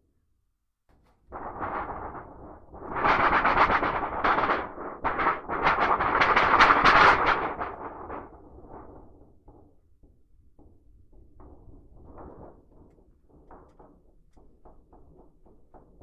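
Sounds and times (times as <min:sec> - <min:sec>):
metal sheet wobbles and knocks: 0:00.9 - 0:16.0
thunder sheet rumble: 0:01.3 - 0:08.4.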